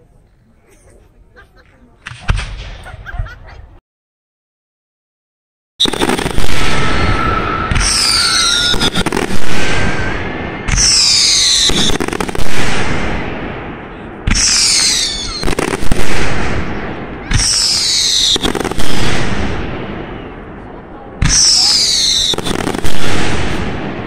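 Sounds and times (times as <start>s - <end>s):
fireworks bangs: 2.0s - 3.4s, 5.8s - 24.0s
fireworks crackling and sizzling: 5.8s - 24.0s.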